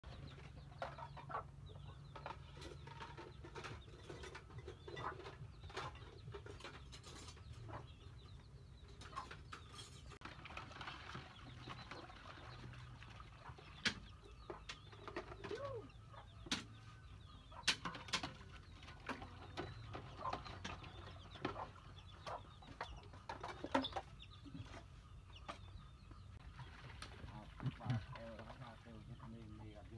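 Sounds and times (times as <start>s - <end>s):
chickens clucking: 0.0s - 29.9s
small birds calling: 0.0s - 29.9s
sharp knocks and clatters: 17.5s - 24.1s.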